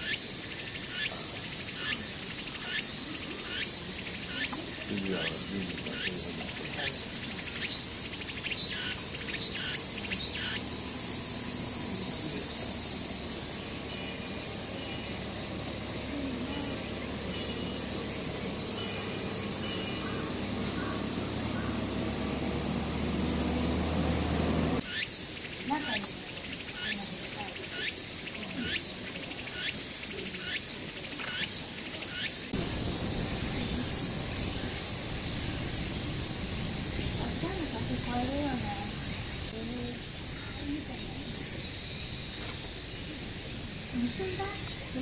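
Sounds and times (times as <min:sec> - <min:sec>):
high insect buzz: 0:00.0 - 0:45.0.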